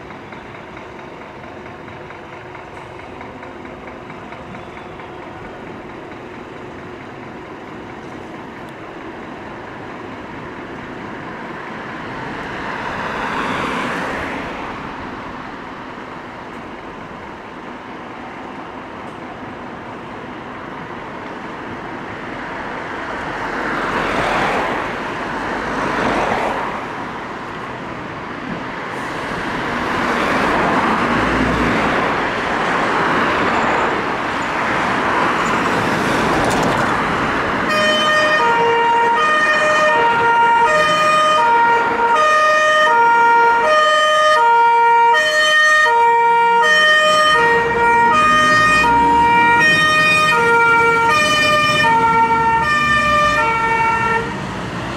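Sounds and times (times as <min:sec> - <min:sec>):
two-tone siren: 0:37.6 - 0:54.4.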